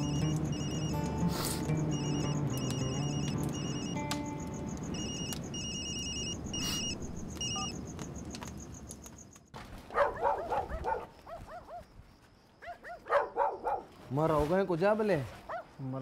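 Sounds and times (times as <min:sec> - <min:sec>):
soft background music: 0:00.0 - 0:06.4
dogs barking: 0:09.9 - 0:11.9, 0:12.6 - 0:13.9, 0:15.5 - 0:15.7.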